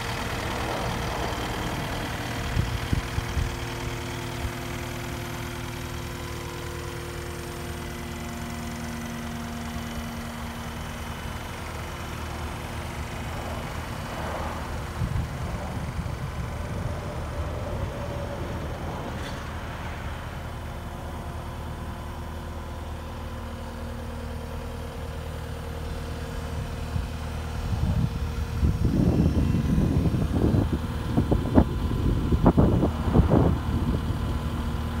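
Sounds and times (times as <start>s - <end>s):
diesel engine idling: 0.0s - 35.0s
irregular rumbling buffets: 13.2s - 21.1s.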